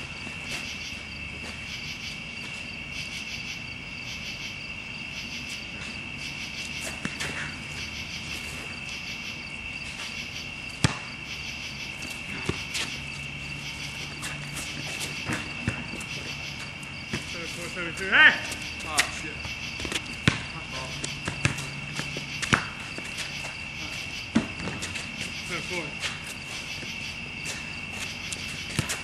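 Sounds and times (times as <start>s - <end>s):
crickets chirping: 0.0s - 29.0s
basketball knocks: 19.8s - 20.5s.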